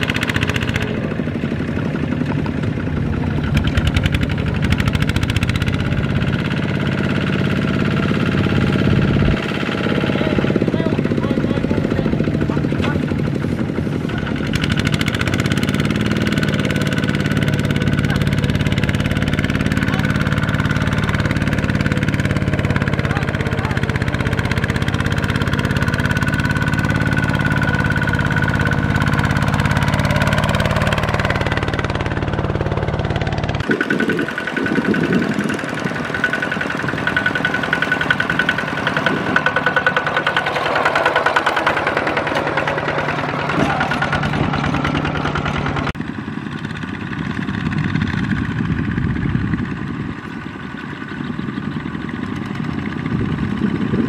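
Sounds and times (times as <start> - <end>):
diesel tiller engine running: 0.0 - 54.0
more tiller engines: 0.0 - 54.0.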